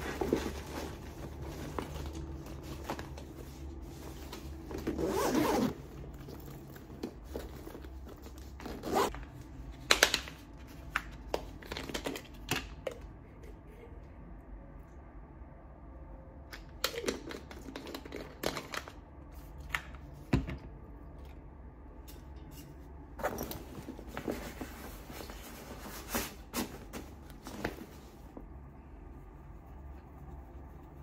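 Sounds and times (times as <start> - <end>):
fabric backpack rustling: 0.0 - 6.5, 7.2 - 9.1.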